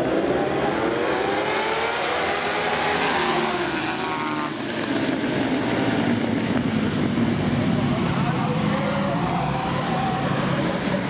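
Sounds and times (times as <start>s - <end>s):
racing motorcycles revving past: 0.0s - 7.1s.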